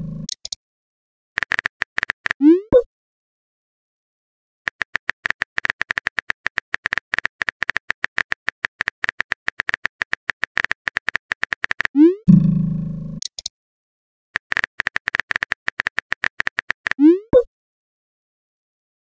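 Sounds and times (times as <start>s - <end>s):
phone keyboard typing clicks: 4.7s - 11.9s, 13.2s - 13.5s, 14.4s - 17.0s.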